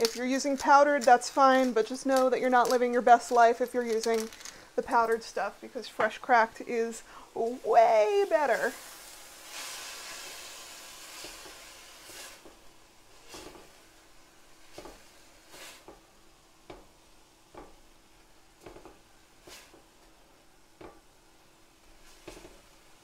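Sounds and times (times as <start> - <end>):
vegetables sizzling in a pan: 0.0 - 23.0
spatula scraping a pan: 8.4 - 12.5, 13.2 - 13.8, 14.6 - 16.0, 18.6 - 19.8, 21.8 - 22.7.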